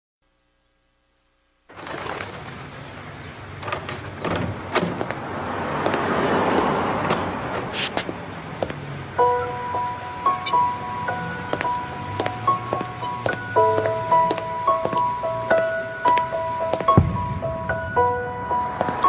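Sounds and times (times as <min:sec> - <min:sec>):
steady street background noise: 0:01.7 - 0:19.0
birds chirping: 0:02.4 - 0:04.7, 0:06.6 - 0:19.0.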